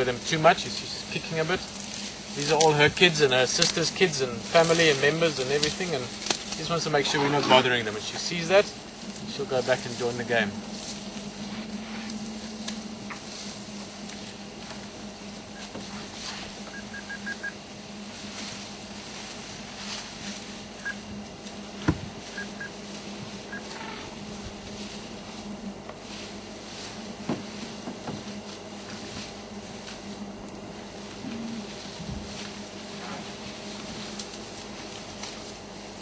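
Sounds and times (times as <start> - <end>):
brush snapping and rustling: 0.6 - 15.0, 33.3 - 35.7.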